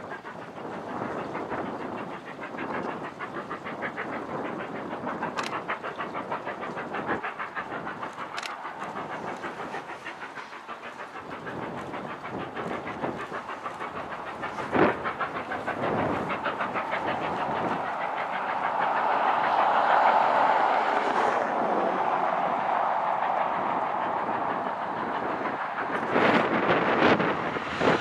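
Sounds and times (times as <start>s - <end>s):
distant steam locomotive exhaust beats: 0.0s - 28.0s.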